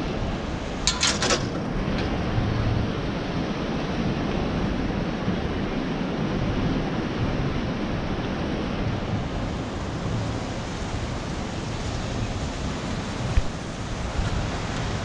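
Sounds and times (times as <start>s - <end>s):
ocean surf breaking: 0.0s - 15.0s
wind on microphone: 0.0s - 15.0s.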